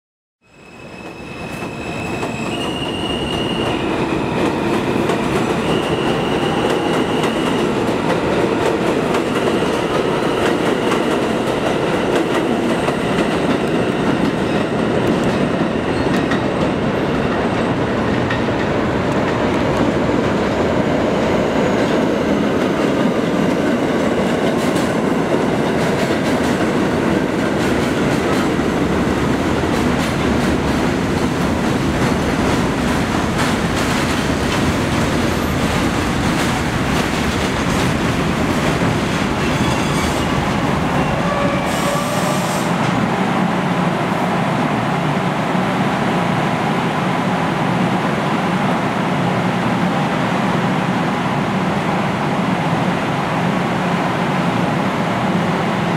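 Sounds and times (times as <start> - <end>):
train running past: 0.5 - 55.9
train wheels rumbling on track: 0.9 - 55.9.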